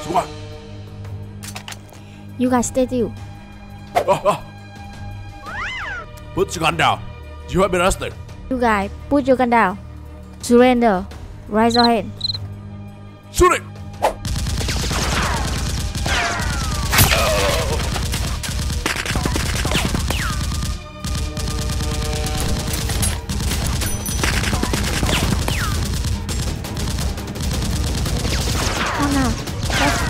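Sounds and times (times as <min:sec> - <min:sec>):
automatic gunfire: 0:14.3 - 0:30.0.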